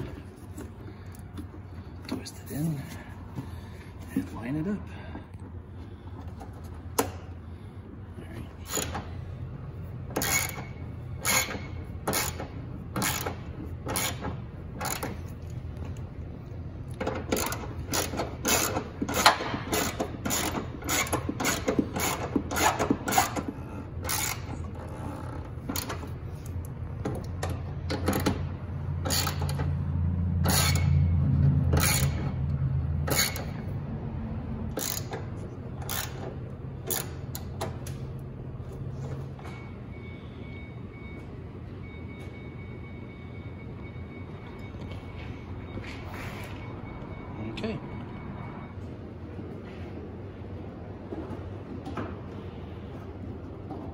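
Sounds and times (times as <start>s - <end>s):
ratchet clicking: 10.2s - 15.2s, 17.0s - 23.4s, 24.0s - 24.6s, 29.0s - 29.7s, 30.4s - 31.0s, 31.7s - 32.4s, 33.0s - 33.6s, 34.7s - 37.6s.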